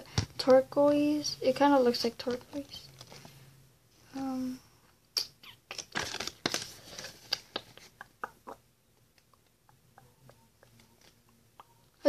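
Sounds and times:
paper rustling and crinkling: 5.7 - 8.0.

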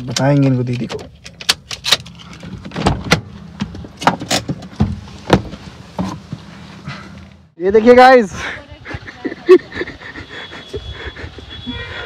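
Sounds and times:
clicks and knocks in car cabin: 0.0 - 6.4.

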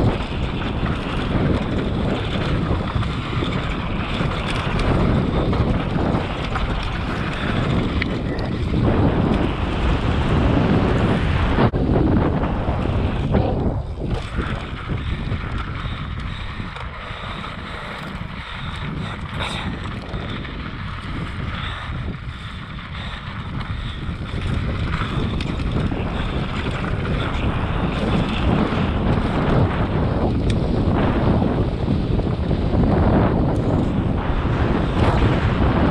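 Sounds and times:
tyres rolling and skidding on dirt: 0.0 - 35.9
wind on microphone: 0.0 - 35.9.

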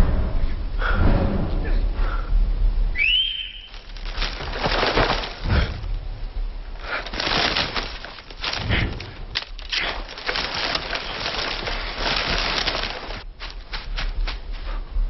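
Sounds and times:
high whistle: 2.9 - 3.8
rustling and crunching through undergrowth: 3.1 - 15.0.

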